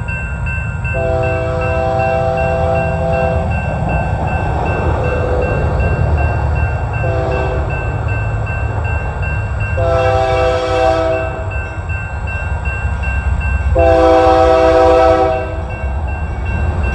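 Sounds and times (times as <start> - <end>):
crossing bell ringing: 0.0 - 16.9
low rumble of train: 0.0 - 16.9
locomotive air horn blasts: 1.0 - 3.5, 7.0 - 7.7, 9.8 - 11.6, 13.7 - 15.6.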